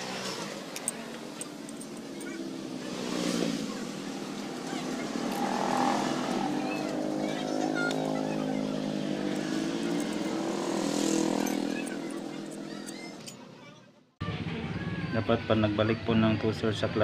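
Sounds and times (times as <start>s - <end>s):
vehicle engine running: 0.0s - 13.5s
metal parts clinking: 0.8s - 2.4s, 9.2s - 10.4s, 11.0s - 13.4s.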